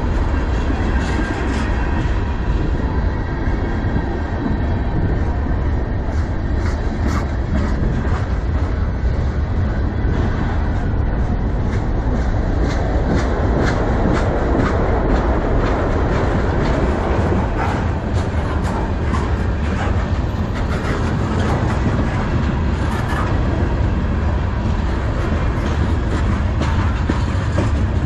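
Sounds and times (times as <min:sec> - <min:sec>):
train wheels rumbling on rail: 0:00.0 - 0:28.0
wheels clacking over rail joints: 0:03.9 - 0:28.0.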